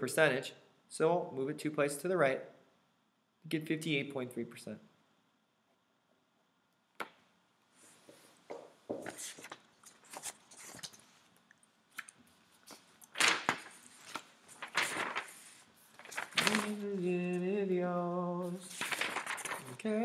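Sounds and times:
paper rustling and crinkling: 0:09.0 - 0:11.3, 0:12.0 - 0:17.4, 0:18.4 - 0:20.0
soft paper scrapes: 0:13.7 - 0:16.8.

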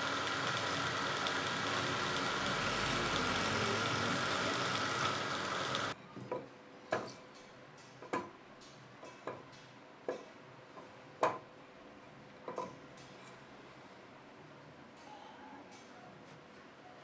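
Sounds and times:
wood lathe running: 0:00.0 - 0:06.0.

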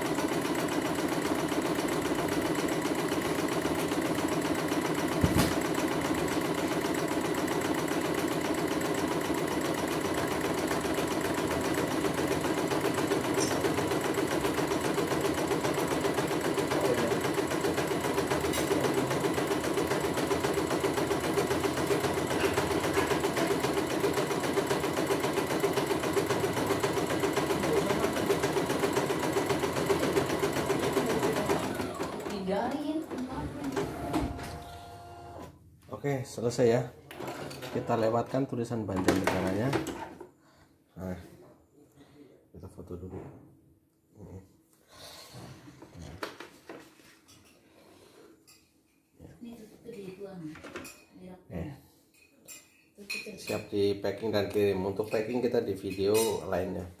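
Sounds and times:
embroidery machine stitching: 0:00.0 - 0:35.5.

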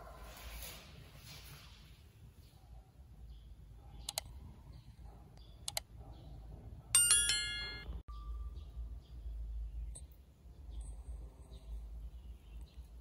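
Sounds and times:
computer mouse clicks: 0:04.0 - 0:04.3, 0:05.6 - 0:05.9
notification bell ding: 0:07.0 - 0:08.5.

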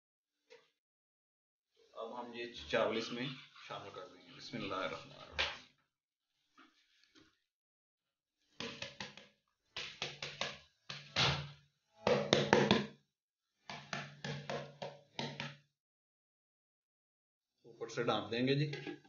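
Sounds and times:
plastic bowl knocking on wok rim: 0:12.1 - 0:12.9, 0:13.7 - 0:15.6, 0:18.7 - 0:19.0.

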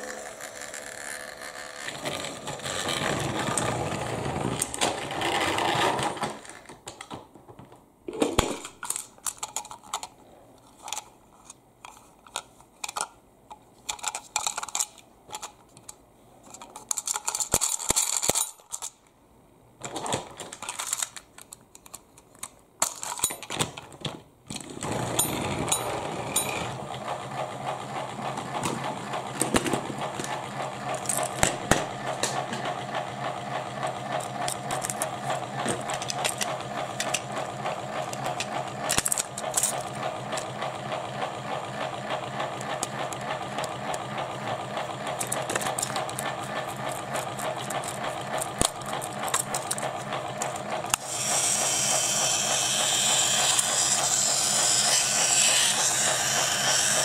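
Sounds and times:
toy train motor whirr: 0:00.0 - 0:04.8, 0:24.7 - 0:57.0
plastic toy handling clicks: 0:08.5 - 0:19.0, 0:19.9 - 0:23.8, 0:34.2 - 0:37.4, 0:38.1 - 0:40.6, 0:45.0 - 0:51.4.

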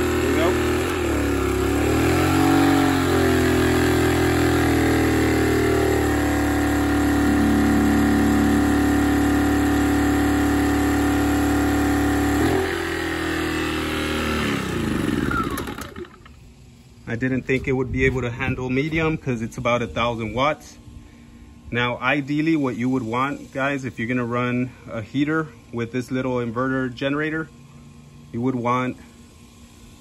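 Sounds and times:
generator engine running hard: 0:00.0 - 0:16.3.

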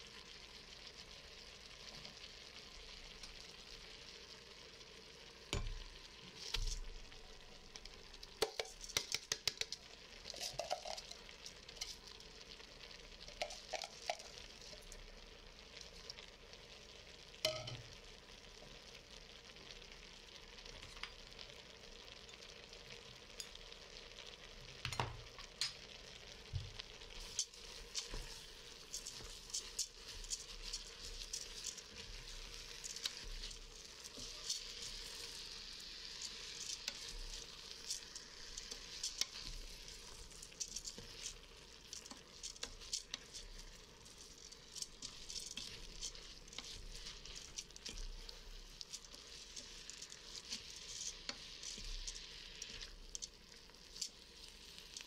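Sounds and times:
food sizzling in a pot: 0:00.0 - 0:55.0
wooden spoon stirring and scraping: 0:05.8 - 0:15.2, 0:26.5 - 0:55.0
rice rattling into a pot: 0:06.3 - 0:12.0, 0:13.2 - 0:14.9, 0:27.2 - 0:55.0.

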